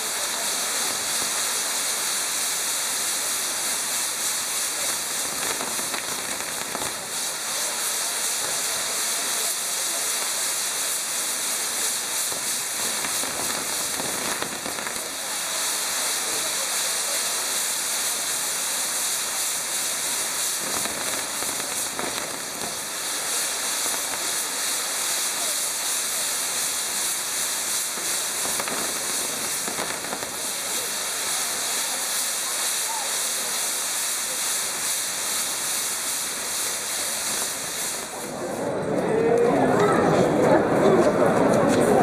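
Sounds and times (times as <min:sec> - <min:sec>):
fireworks hissing and crackling: 0:00.0 - 0:42.0.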